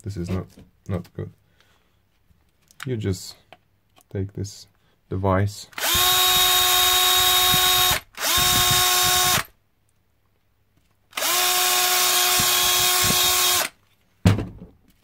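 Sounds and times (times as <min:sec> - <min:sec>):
power drill whining: 0:05.8 - 0:09.5, 0:11.1 - 0:13.8.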